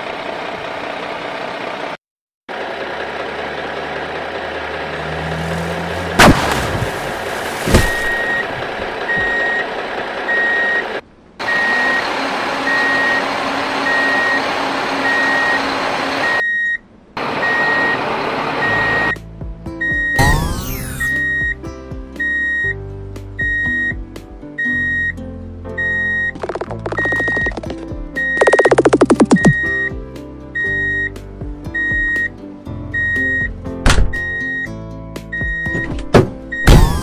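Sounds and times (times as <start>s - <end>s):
truck engine running: 0.0s - 16.4s, 17.2s - 21.6s, 26.4s - 33.6s
sharp bangs: 6.1s - 8.8s
reversing alarm beeping: 7.8s - 9.7s, 10.3s - 16.8s, 17.4s - 19.2s, 19.8s - 21.6s, 22.2s - 22.8s, 23.4s - 24.0s, 25.8s - 26.4s, 30.6s - 31.1s, 31.8s - 32.3s, 32.9s - 33.5s, 35.3s - 37.0s.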